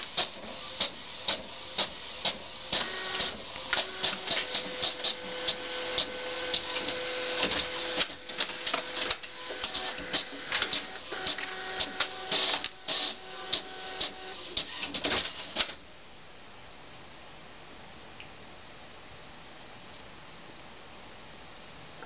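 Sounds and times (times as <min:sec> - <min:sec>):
printer mechanism whirring: 0:00.0 - 0:15.8
quick printer clicks: 0:00.2 - 0:15.8.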